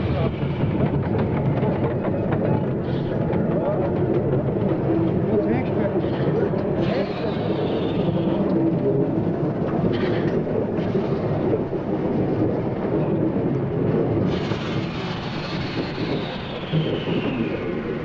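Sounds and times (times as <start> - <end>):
steam locomotive wheels rumbling: 0.0 - 18.0
steam hiss: 14.3 - 18.0.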